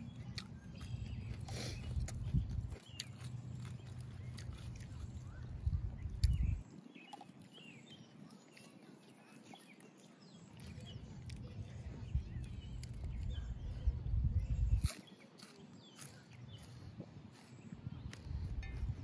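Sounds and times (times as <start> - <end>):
wind rumble on microphone: 0.0 - 7.2, 10.6 - 15.4, 16.0 - 19.0
small birds chirping: 0.0 - 19.0.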